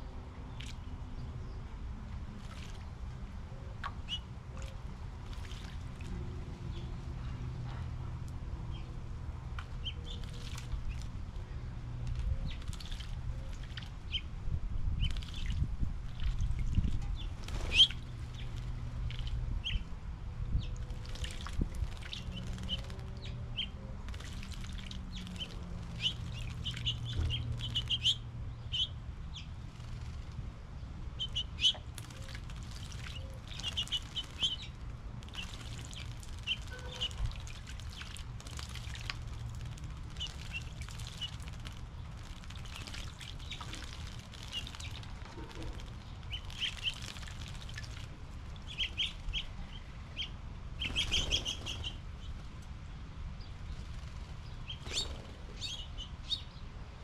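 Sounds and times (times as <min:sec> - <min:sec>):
birds splashing in water: 0:02.2 - 0:06.9, 0:09.5 - 0:14.3, 0:14.9 - 0:19.9, 0:20.6 - 0:28.9, 0:31.2 - 0:52.4, 0:53.6 - 0:55.9
small songbirds chirping: 0:09.6 - 0:14.3, 0:14.9 - 0:19.9, 0:20.5 - 0:56.8.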